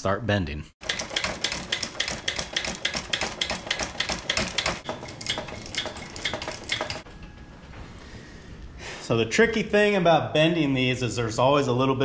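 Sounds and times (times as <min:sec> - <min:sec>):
hydraulic hand pump clicking: 0:00.8 - 0:07.1.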